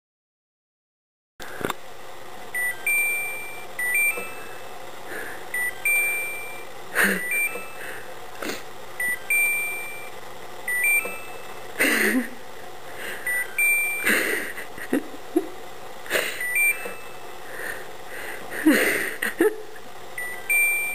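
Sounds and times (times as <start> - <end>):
dishwasher beeping: 2.6 - 8.0, 9.0 - 10.1, 10.7 - 12.2, 13.0 - 15.0, 16.2 - 17.8, 20.2 - 20.9.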